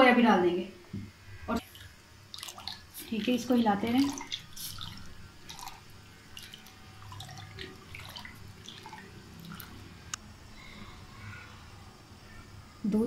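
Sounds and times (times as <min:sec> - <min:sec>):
liquid sloshing in a pot: 0:01.6 - 0:10.2.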